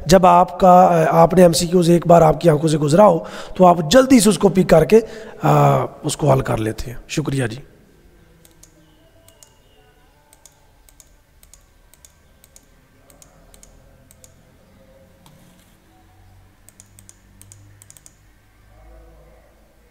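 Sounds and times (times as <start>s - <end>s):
computer mouse clicks: 8.4s - 9.6s, 10.3s - 14.6s, 15.2s - 15.8s, 16.6s - 18.3s.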